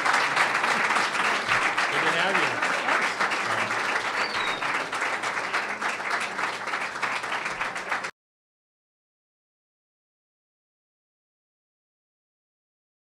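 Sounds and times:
audience applauding: 0.0 - 8.1.

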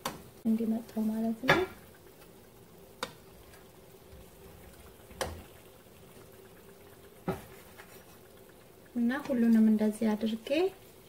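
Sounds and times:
oil frying bubbling hiss: 0.0 - 11.0.

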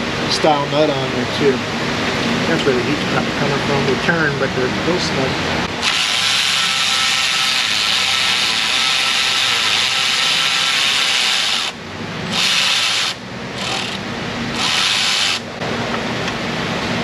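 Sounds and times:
cordless electric ratchet running: 5.8 - 15.5.

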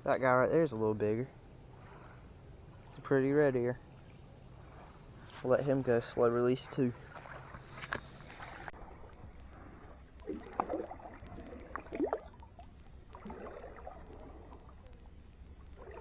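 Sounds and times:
shallow water sloshing: 0.5 - 16.0
small splashy plops: 7.0 - 8.7, 10.2 - 14.7.

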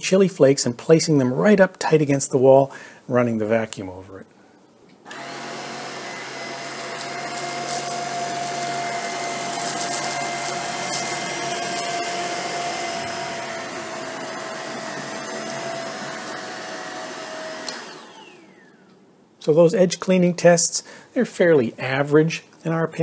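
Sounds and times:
stick vacuum running: 5.1 - 18.8.

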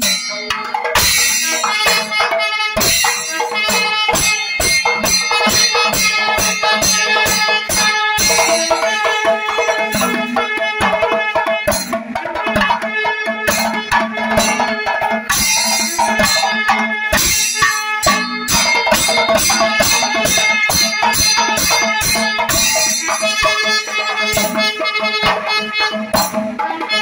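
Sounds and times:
clashing cymbals: 0.0 - 2.2, 2.8 - 10.6, 13.5 - 27.0
hourglass drums: 0.0 - 2.2, 2.8 - 10.6, 13.5 - 24.8
hand drums: 0.0 - 27.0.

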